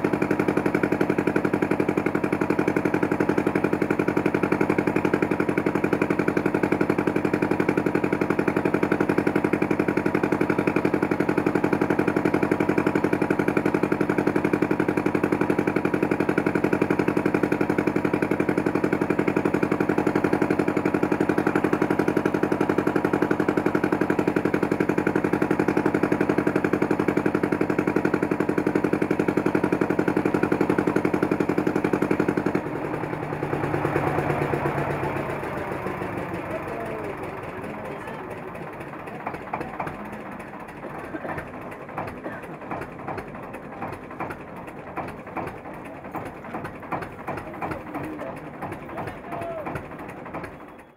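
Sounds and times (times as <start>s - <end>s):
boat engine running: 0.0s - 50.9s.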